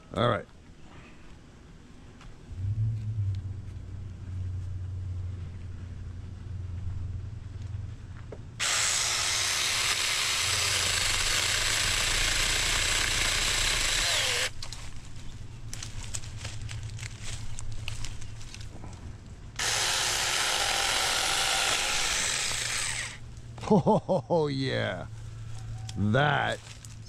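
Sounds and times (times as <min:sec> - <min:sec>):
low hum: 0:00.0 - 0:27.0
electric chainsaw buzzing: 0:08.6 - 0:14.6, 0:19.6 - 0:23.2.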